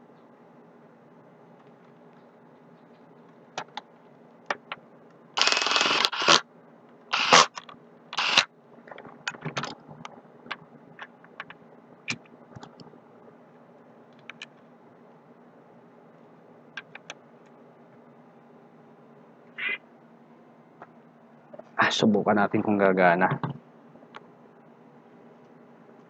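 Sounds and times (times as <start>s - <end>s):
small clicks and taps: 14.1s - 14.7s, 16.8s - 17.6s.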